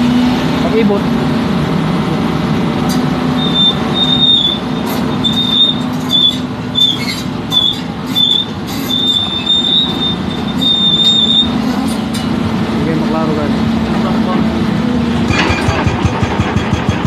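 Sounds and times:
diesel engine running: 0.0s - 17.0s
high metallic squeal: 3.4s - 12.4s
sharp clicks and knocks: 15.2s - 17.0s.

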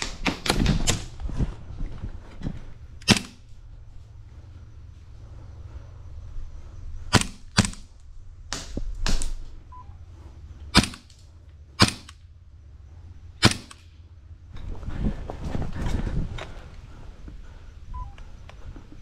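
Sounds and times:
steady low rumble: 0.0s - 19.0s
airsoft gun cracks: 3.0s - 3.4s, 7.1s - 7.9s, 10.7s - 11.2s, 11.8s - 12.2s, 13.4s - 13.9s.

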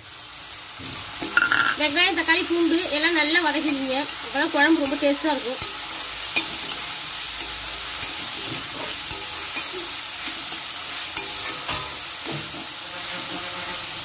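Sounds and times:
vegetables sizzling in hot oil: 0.0s - 14.0s
steel spoon scraping pan: 1.2s - 1.9s, 3.6s - 13.7s.

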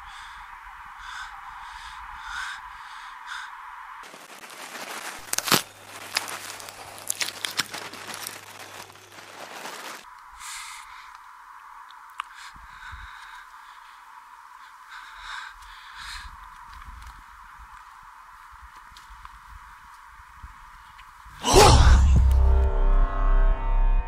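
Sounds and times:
crow cawing: 0.0s - 3.6s, 12.3s - 16.4s
crackling with sharp cracks: 4.0s - 12.6s, 14.6s - 20.2s.

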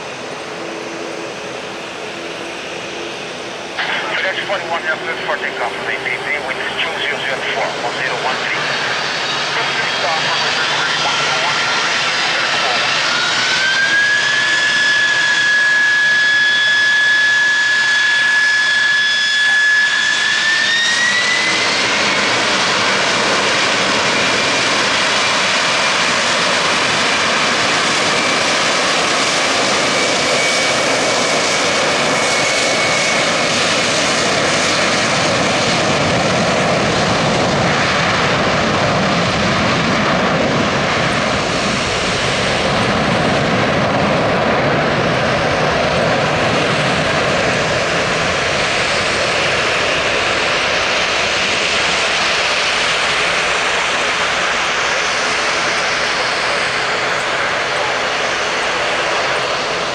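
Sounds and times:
jet engines spooling up: 0.0s - 59.9s.

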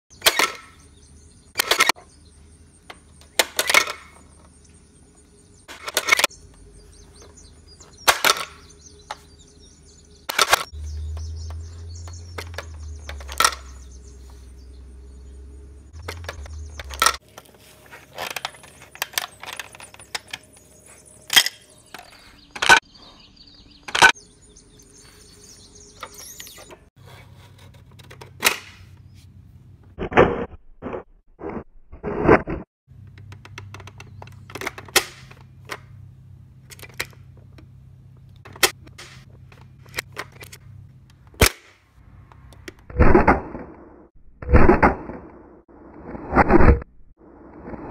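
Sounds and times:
spring-loaded lids snapping open: 0.2s - 0.7s, 1.6s - 2.0s, 3.3s - 4.2s, 10.3s - 10.7s, 12.3s - 13.8s, 33.1s - 35.9s, 36.7s - 37.6s
plastic toy clacks: 33.1s - 35.9s.

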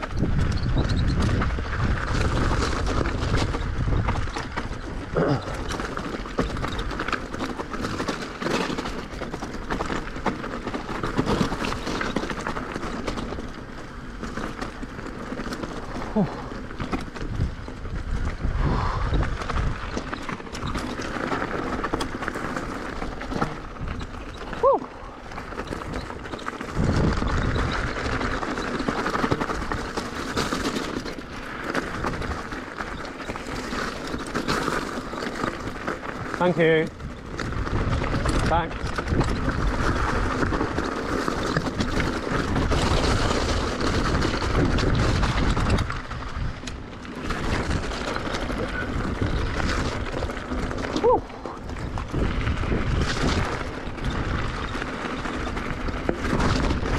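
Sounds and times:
wind rushing over microphone: 0.0s - 5.7s, 17.2s - 20.2s, 26.7s - 28.4s, 41.5s - 56.9s
bike clicks and rattles: 0.0s - 56.9s.

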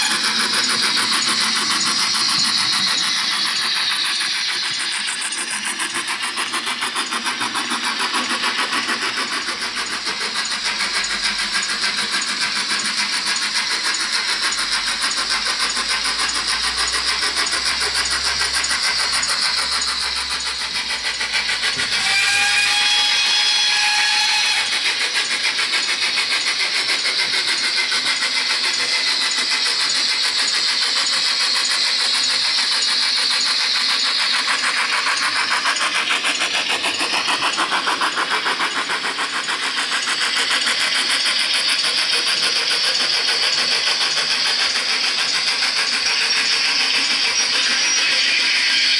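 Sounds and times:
train whistle tone: 0.0s - 0.9s, 21.5s - 25.4s, 46.2s - 48.9s
steam locomotive exhaust beats: 0.0s - 48.9s.

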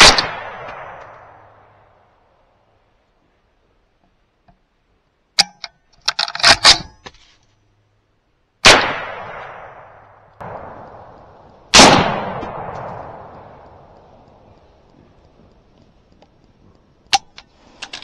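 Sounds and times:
rifle shots echoing: 0.0s - 1.8s, 8.6s - 14.4s
sharp clicks: 12.7s - 18.0s.

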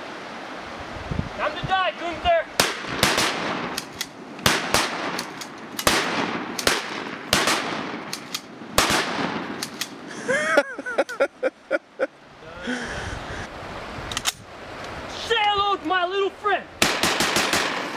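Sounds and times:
rifle and shotgun gunfire: 2.6s - 10.0s, 16.8s - 17.9s.

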